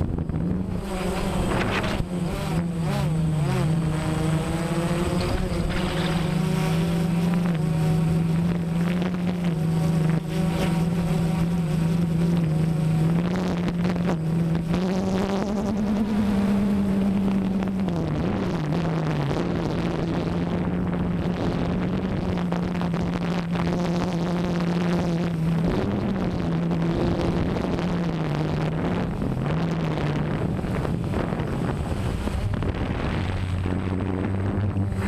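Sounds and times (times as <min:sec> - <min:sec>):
drone propellers buzzing: 0:00.0 - 0:35.0.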